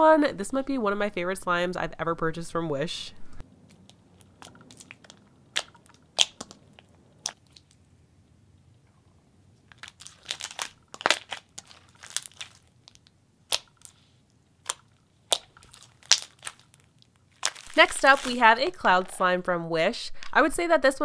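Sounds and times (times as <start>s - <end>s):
slime clicking and popping: 3.8s - 7.7s, 9.8s - 13.9s, 14.6s - 18.3s.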